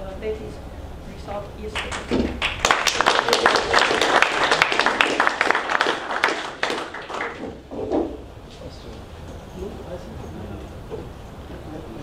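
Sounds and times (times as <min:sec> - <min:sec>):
audience clapping: 0:01.8 - 0:07.7.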